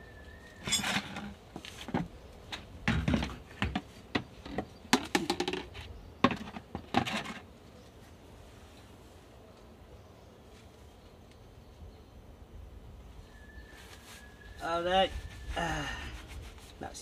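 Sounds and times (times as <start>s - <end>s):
plastic bottle knocks and scrapes: 2.8s - 7.4s.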